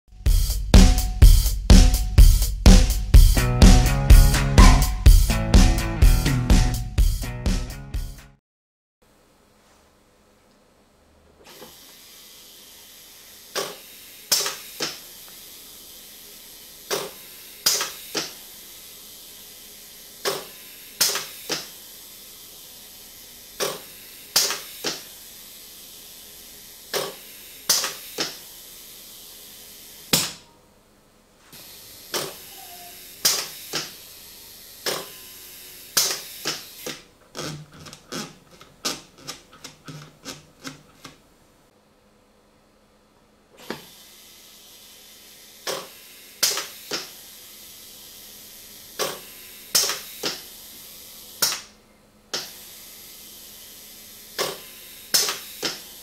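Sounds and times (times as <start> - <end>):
steady air hiss: 11.5 - 30.1, 52.4 - 56.0
valve clicks and air puffs: 13.5 - 15.5, 16.9 - 18.4, 20.2 - 21.8, 23.6 - 25.2, 26.9 - 28.5, 33.2 - 34.0, 36.0 - 37.0, 45.6 - 47.3, 48.9 - 56.0.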